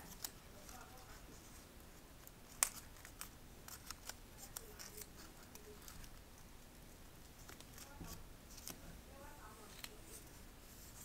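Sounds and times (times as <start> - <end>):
paper clicks and rustles: 2.5 - 6.2, 7.4 - 8.8.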